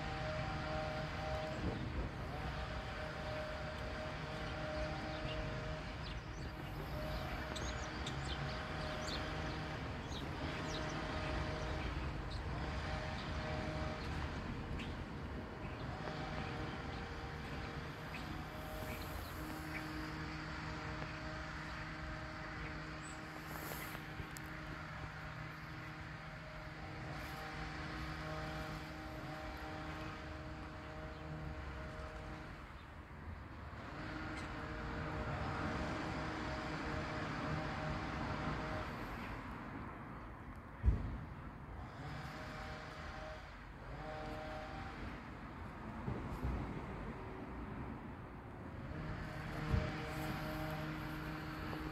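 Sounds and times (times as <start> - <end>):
distant jet engine rumble: 0.0 - 51.9
faint steady hum tones: 0.0 - 51.9
small birds chirping: 2.6 - 20.3.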